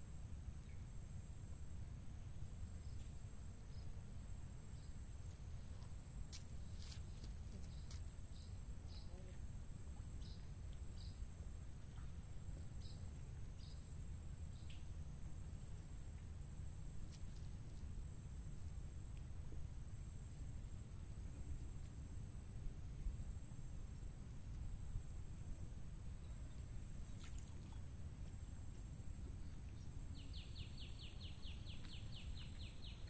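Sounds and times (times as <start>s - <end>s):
insects droning: 0.0s - 33.0s
low steady rumble: 0.0s - 33.0s.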